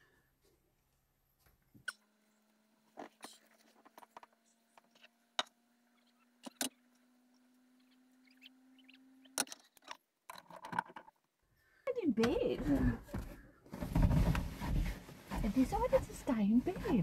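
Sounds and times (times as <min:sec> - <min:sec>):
small motor humming: 0:01.8 - 0:09.5
knocks and clicks of handling: 0:09.4 - 0:11.2.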